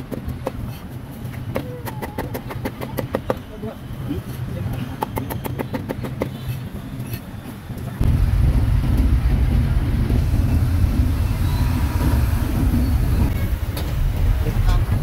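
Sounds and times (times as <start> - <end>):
road traffic noise: 0.0 - 15.0
low engine rumble: 8.0 - 15.0.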